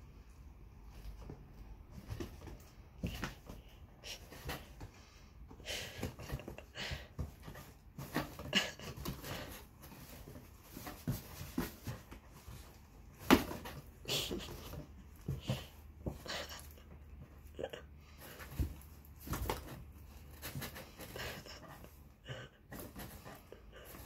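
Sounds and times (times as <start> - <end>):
kitten scraping in cardboard box: 18.1 - 24.0.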